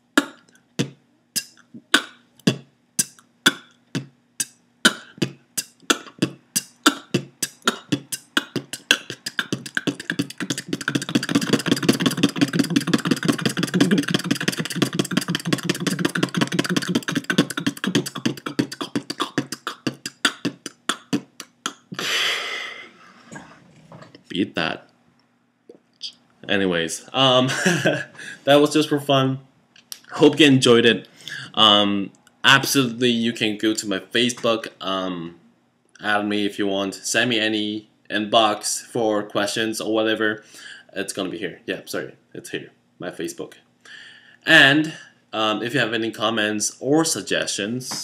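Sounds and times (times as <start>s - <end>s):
beatboxing: 0.0s - 22.3s.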